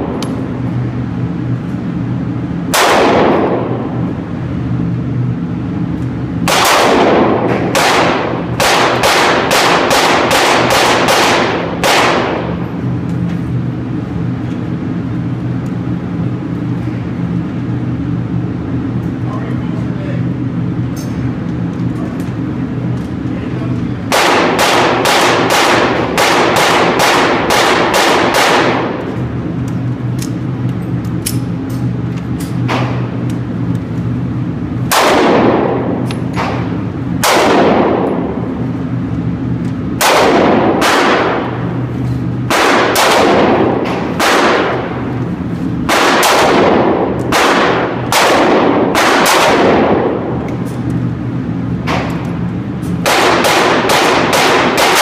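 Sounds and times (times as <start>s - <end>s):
steady low hum: 0.0s - 55.0s
pistol shots echoing: 2.7s - 4.0s, 6.4s - 12.6s, 24.1s - 29.3s, 34.9s - 38.4s, 40.0s - 41.8s, 42.4s - 45.2s, 45.8s - 50.4s, 53.0s - 55.0s.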